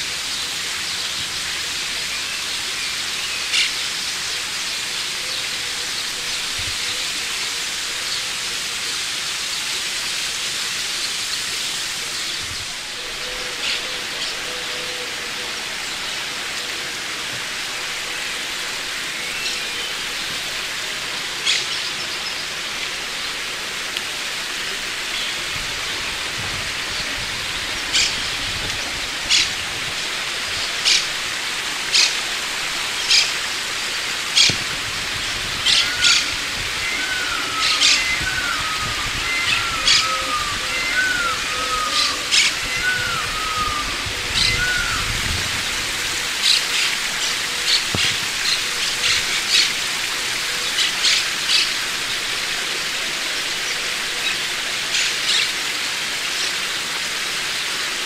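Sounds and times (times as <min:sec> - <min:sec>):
steady rushing hiss: 0:00.0 - 0:58.0
small birds calling: 0:10.8 - 0:56.9.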